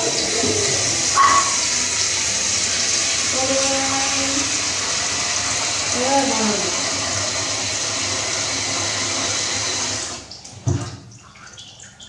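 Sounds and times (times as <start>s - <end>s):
tap running into sink: 10.5s - 11.1s.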